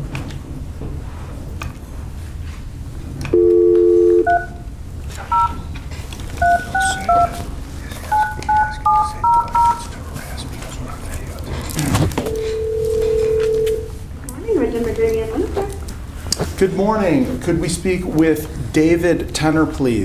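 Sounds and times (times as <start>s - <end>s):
phone dial tone: 3.3s - 4.6s, 5.3s - 5.6s, 6.4s - 7.4s, 12.3s - 13.9s
touch-tone key beeps: 5.3s - 5.6s, 6.4s - 7.4s, 8.1s - 9.8s.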